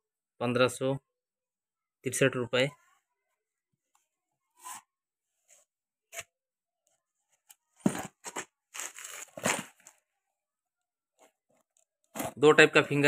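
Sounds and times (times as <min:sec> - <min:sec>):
cardboard box scraping and rustling: 0:07.8 - 0:09.9.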